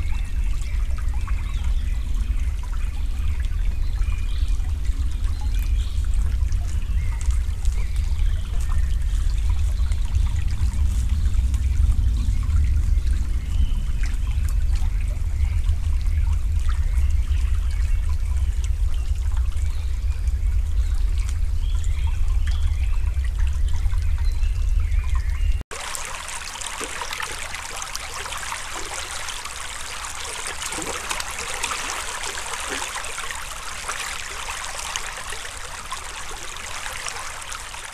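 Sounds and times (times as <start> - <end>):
stream trickling: 0.0 - 37.9
low rumble: 0.1 - 25.6.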